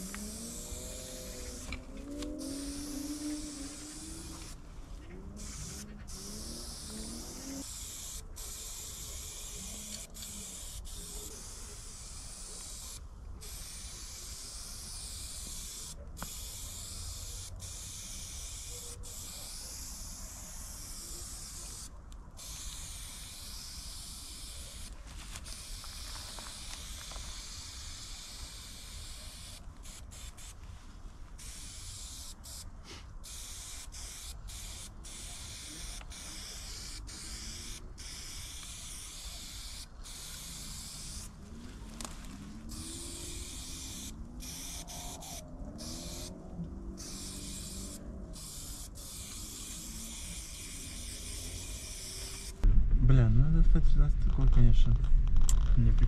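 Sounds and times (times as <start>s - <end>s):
aerosol spray can hissing: 0.0s - 4.6s, 5.4s - 30.6s, 31.4s - 41.4s, 42.5s - 46.4s, 47.0s - 52.6s
steady low rumble: 52.6s - 56.0s.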